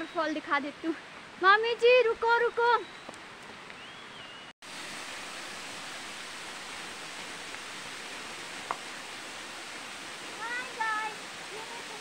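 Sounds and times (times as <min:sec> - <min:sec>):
waterfall rushing onto stones: 0:04.6 - 0:12.0.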